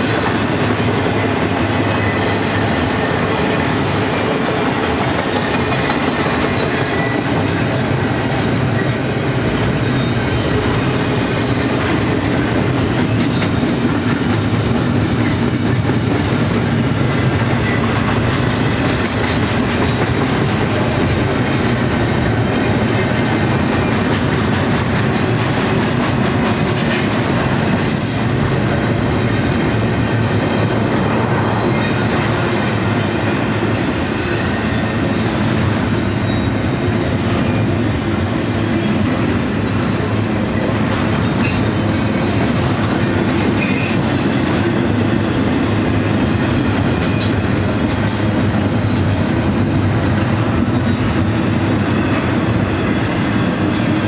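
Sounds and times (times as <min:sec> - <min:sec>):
freight train rumbling and rattling: 0:00.0 - 0:54.0
high wheel squeal: 0:12.7 - 0:15.6.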